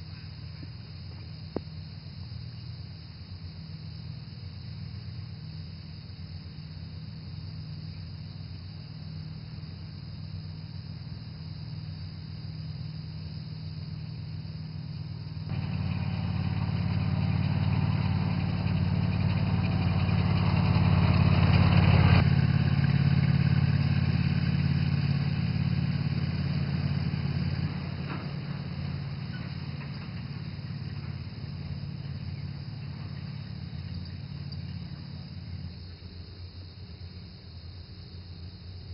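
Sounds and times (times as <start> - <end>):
utility vehicle driving by: 14.9 - 35.7.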